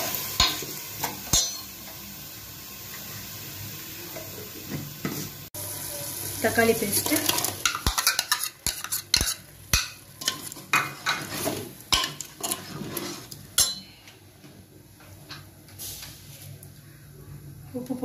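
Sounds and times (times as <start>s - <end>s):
ladle scraping and stirring in pot: 7.0s - 13.7s.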